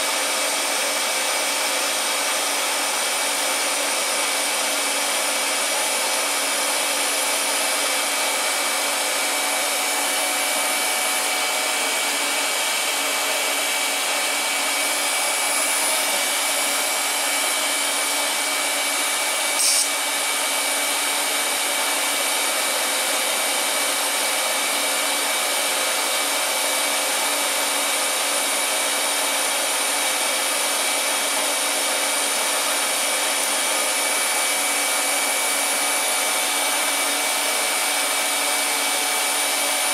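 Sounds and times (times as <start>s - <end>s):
short sharp click: 19.6s - 19.9s.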